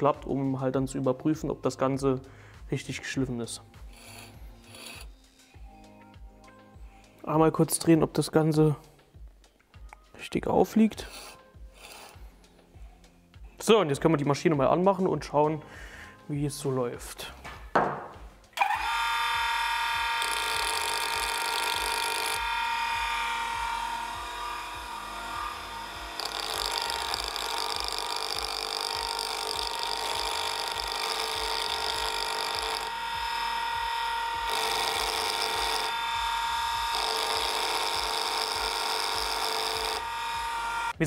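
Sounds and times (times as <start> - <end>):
chisel grinding on wheel: 3.9 - 5.2, 20.2 - 40.9
grinder motor whining: 18.6 - 41.0.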